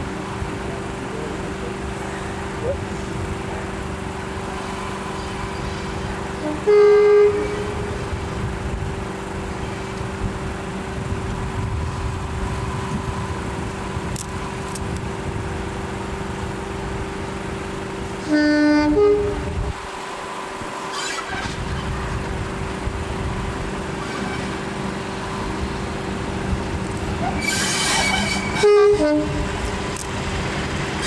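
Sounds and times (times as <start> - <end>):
diesel locomotive engine: 0.0 - 31.0
two-tone train horn: 6.3 - 8.2, 18.2 - 19.8, 27.3 - 29.6.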